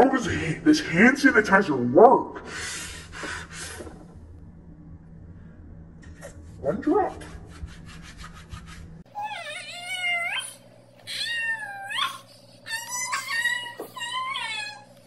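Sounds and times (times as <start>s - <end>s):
hands rubbing together: 7.1s - 8.9s
girl crying: 9.2s - 14.9s.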